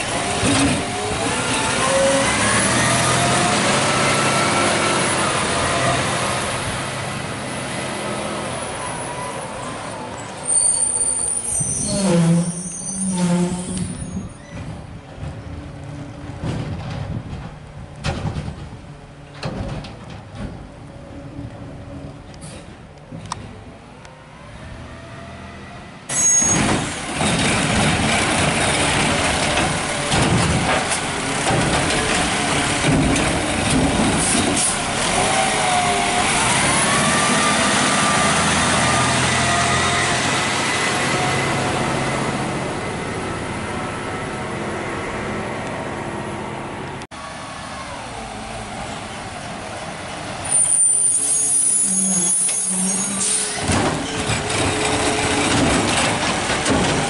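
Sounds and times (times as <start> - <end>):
air brakes hissing: 50.5 - 53.8.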